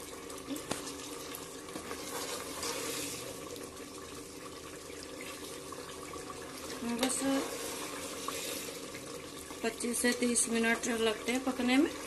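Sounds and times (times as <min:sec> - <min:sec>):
masala sizzling in oil: 0:00.0 - 0:12.0
metal ladle scraping pot: 0:01.7 - 0:03.4, 0:07.0 - 0:08.8.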